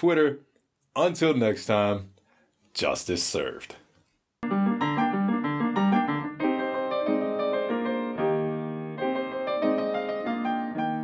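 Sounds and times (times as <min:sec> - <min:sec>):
piano music: 0:04.4 - 0:11.0.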